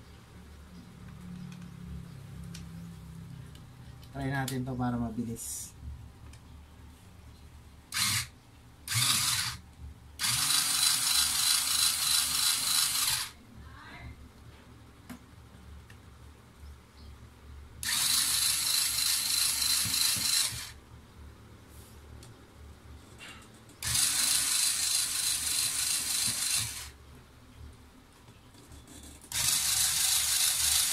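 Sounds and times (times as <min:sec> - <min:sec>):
electric screwdriver whirring: 0:07.9 - 0:08.3, 0:08.9 - 0:09.6, 0:10.2 - 0:13.4, 0:17.8 - 0:20.8, 0:23.8 - 0:27.0, 0:29.3 - 0:30.9.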